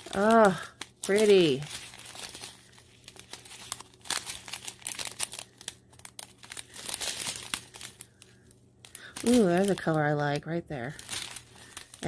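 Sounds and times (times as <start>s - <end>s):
faint steady hum: 0.0s - 12.0s
plastic bags crinkling: 0.0s - 12.0s.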